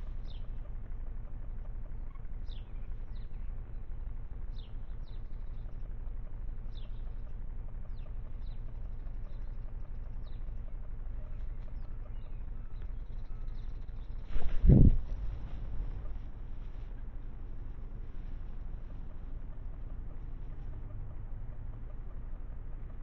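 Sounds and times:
small bird calling: 0.0 - 23.0
low rumble: 7.9 - 23.0.

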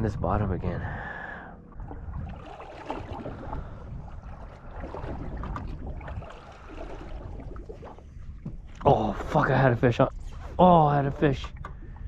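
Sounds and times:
steady low rumble: 0.0 - 12.0
waves slapping metal boat hull: 1.8 - 9.8.

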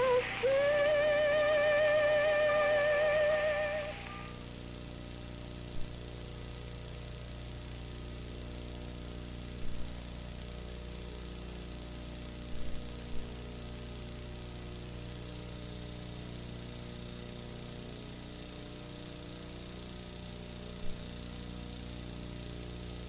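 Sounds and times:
electrical hum with hiss: 0.0 - 23.0.

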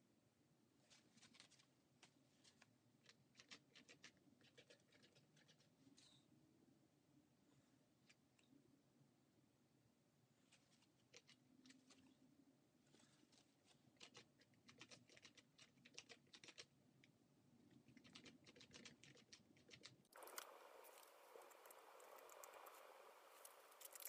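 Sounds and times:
faint steady hiss: 20.1 - 24.0.

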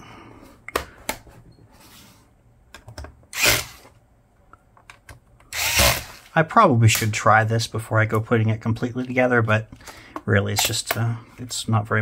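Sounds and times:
cordless screwdriver whirring: 3.3 - 3.8, 5.5 - 6.2.

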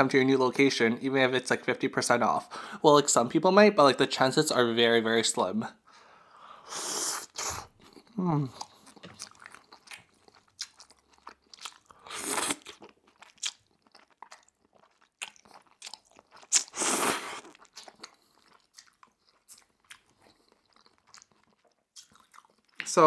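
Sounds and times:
chewing with wet mouth clicks: 7.8 - 16.8, 17.4 - 23.0
noodle slurps: 12.0 - 12.7, 16.5 - 17.6.

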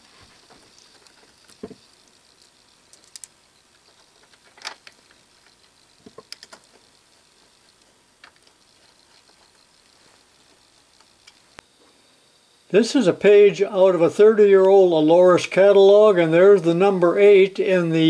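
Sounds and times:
metallic clicks and clinks: 0.6 - 6.8.

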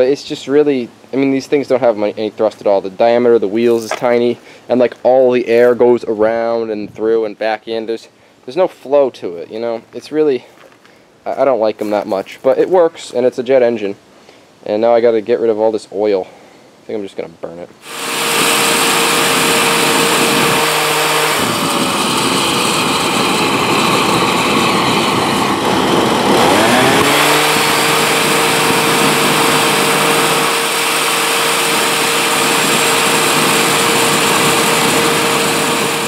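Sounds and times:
leaf blower engine running: 17.8 - 36.0
loud rush of air: 17.8 - 36.0.

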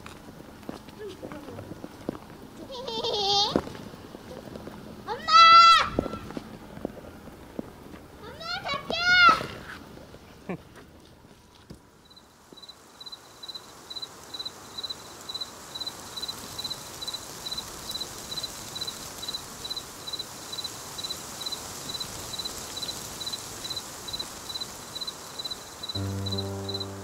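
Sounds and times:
soft outdoor hiss: 0.0 - 27.0
cricket chirping: 12.0 - 27.0.

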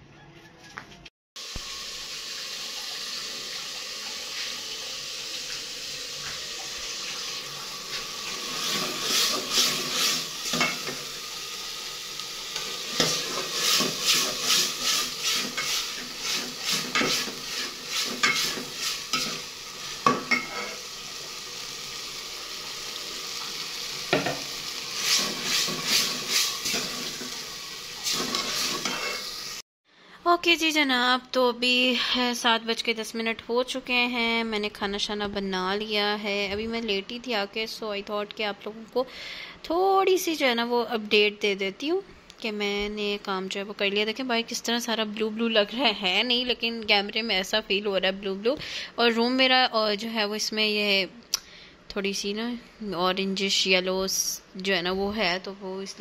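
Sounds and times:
food sizzling in oil: 1.4 - 29.6
metal spoon scraping pot: 12.9 - 19.4, 28.0 - 29.3.

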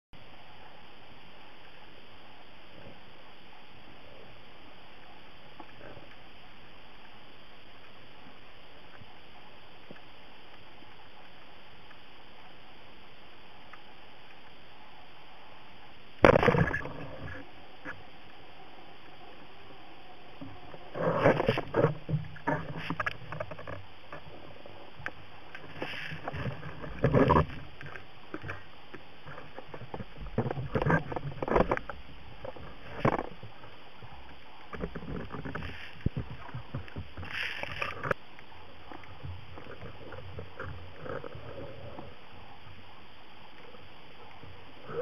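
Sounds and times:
steady hiss: 0.2 - 45.0
underwater knocks and scrapes: 16.2 - 18.4, 19.0 - 43.0.

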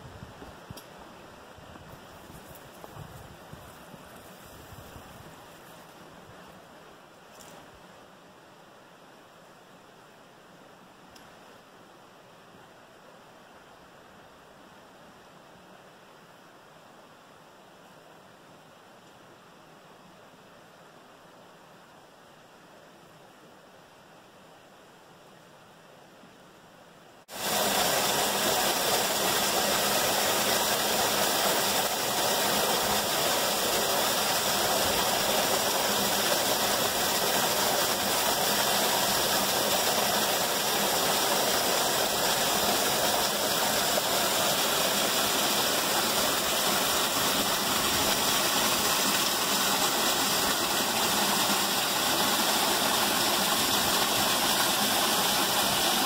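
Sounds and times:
faint hiss: 0.0 - 56.0
waterfall splashing into pool: 27.3 - 56.0.

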